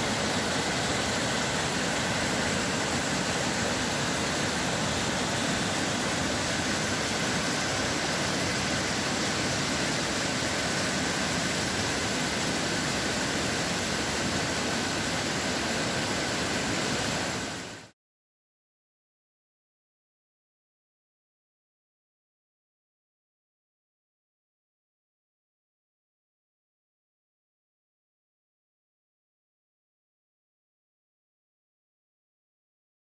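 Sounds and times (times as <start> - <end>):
river rushing over rocks: 0.0 - 17.8.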